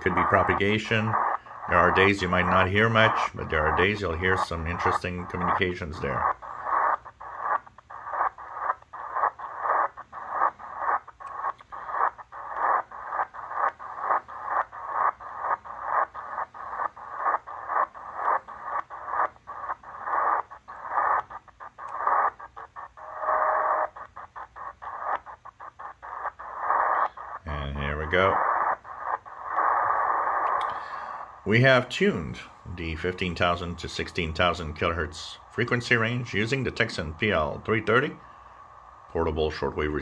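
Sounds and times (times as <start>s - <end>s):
radio static: 0.0s - 40.0s.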